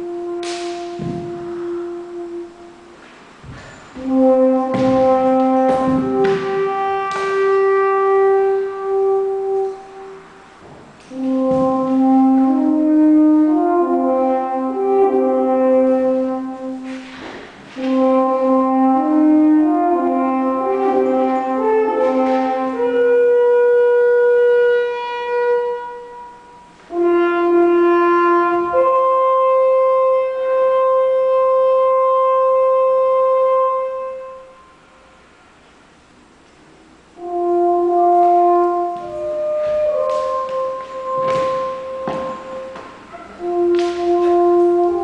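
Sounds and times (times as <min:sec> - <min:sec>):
slow horn-like music: 0:00.0 - 0:36.4, 0:37.0 - 0:45.0.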